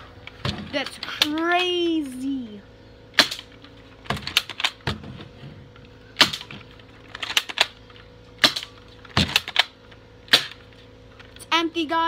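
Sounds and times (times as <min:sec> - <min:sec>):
airsoft gun cocking and firing: 0:03.2 - 0:04.8, 0:06.2 - 0:10.6.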